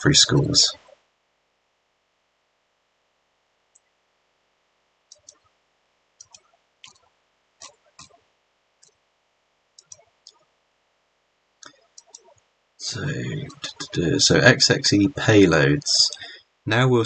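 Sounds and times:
computer mouse clicking: 3.7 - 3.9, 5.1 - 5.5, 6.2 - 8.2, 8.8 - 9.0, 9.8 - 10.5, 11.6 - 12.4.

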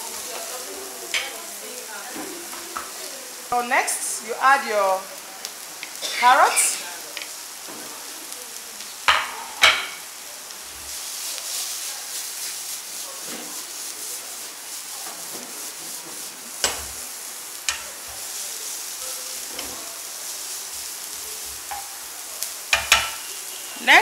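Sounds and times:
vegetables sizzling in oil: 0.0 - 24.0
spatula knocking on pan: 9.1 - 10.0, 22.7 - 23.2.

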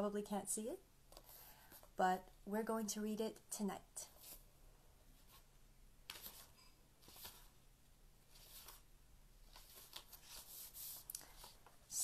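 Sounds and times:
book pages rustling: 1.1 - 2.0, 4.1 - 4.5, 5.2 - 7.6, 8.2 - 12.0.

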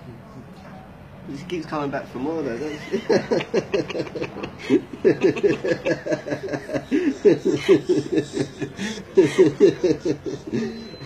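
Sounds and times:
person chuckling: 2.7 - 11.0.

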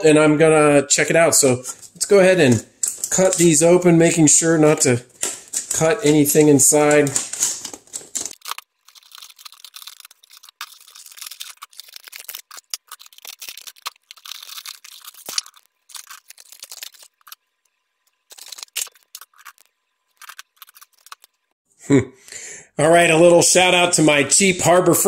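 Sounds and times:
scissors cutting packaging: 5.3 - 17.4.

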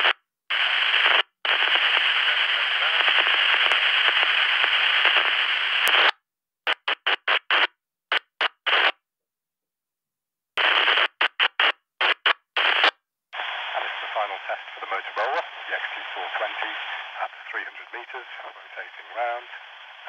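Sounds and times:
walkie-talkie static bursts: 0.0 - 9.0, 10.6 - 20.0
faint voice: 1.9 - 4.0, 13.4 - 19.8.

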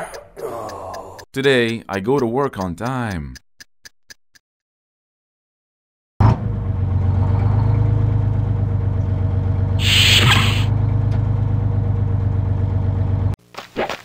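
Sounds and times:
bus engine rumbling: 6.2 - 13.4
pneumatic hiss: 9.8 - 10.7.

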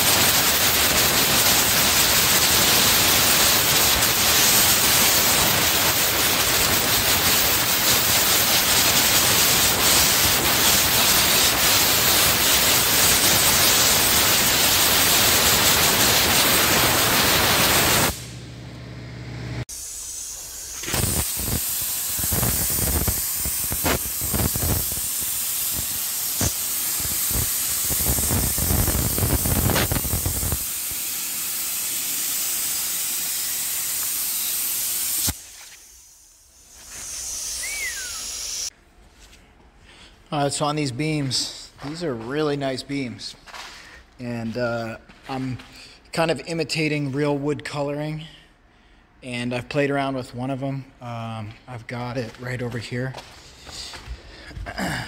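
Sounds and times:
compressed air hissing from blow gun: 0.0 - 18.2, 19.7 - 38.7.

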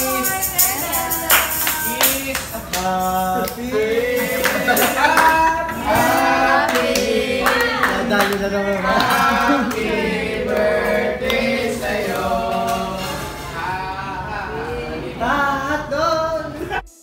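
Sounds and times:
rhythmic hand claps: 0.0 - 13.0
group singing a birthday song: 0.0 - 17.0.

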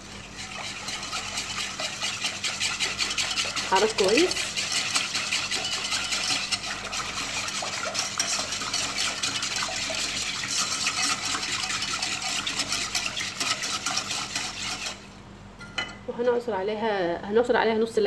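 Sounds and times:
whisk scraping metal saucepan: 0.0 - 15.2.

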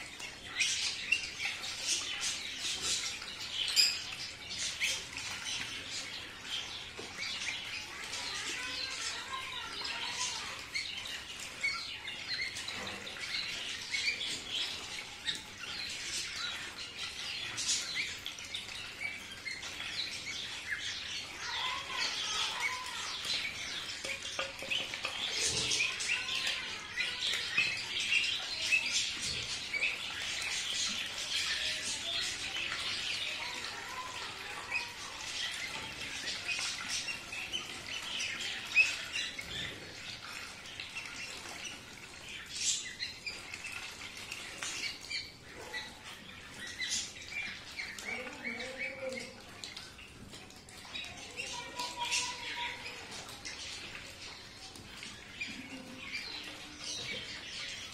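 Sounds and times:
ducklings peeping: 0.2 - 49.4.

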